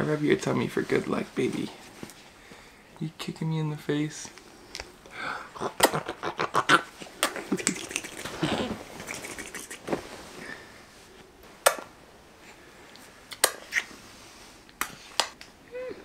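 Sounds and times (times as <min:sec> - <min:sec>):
kissing lip smacks: 0:05.7 - 0:09.9, 0:13.3 - 0:13.9
bedding rustling: 0:09.8 - 0:11.5.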